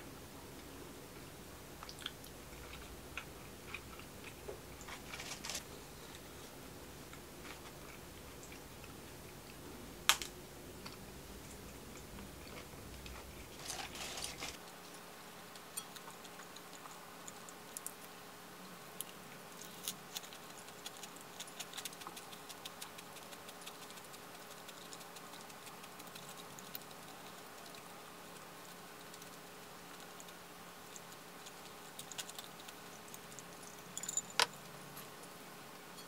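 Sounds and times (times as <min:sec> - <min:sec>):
rustling: 0:04.8 - 0:06.4, 0:13.1 - 0:15.0
crisp chewing crunches: 0:11.9 - 0:14.9, 0:19.0 - 0:33.9.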